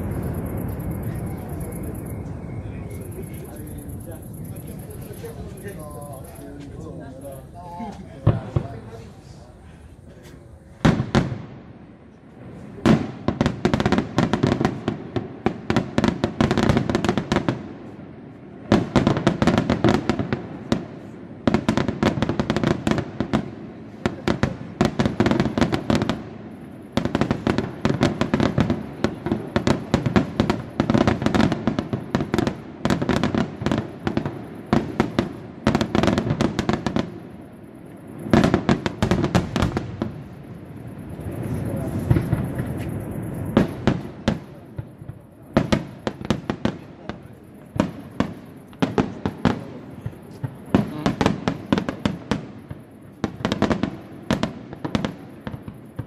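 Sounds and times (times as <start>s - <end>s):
fireworks bangs and cracks: 0.0s - 56.0s.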